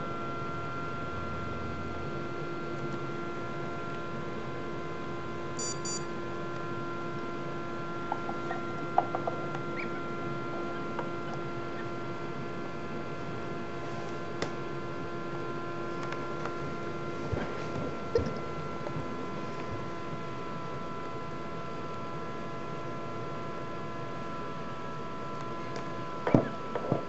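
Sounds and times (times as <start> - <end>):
incubator humming: 0.0 - 27.0.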